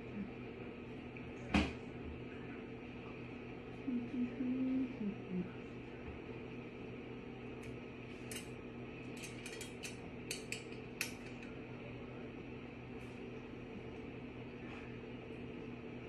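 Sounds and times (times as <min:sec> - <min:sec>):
steady low hum: 0:00.0 - 0:16.0
light metallic clicks and clinks: 0:09.2 - 0:11.5.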